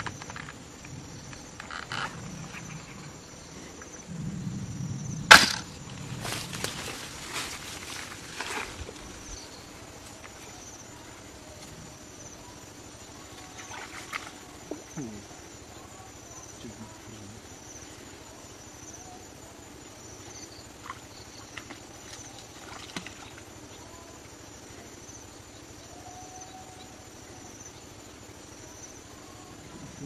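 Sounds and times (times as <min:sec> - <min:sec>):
steady outdoor hiss: 0:00.0 - 0:30.0
wading rustles and splashes: 0:13.2 - 0:15.0, 0:20.6 - 0:23.8.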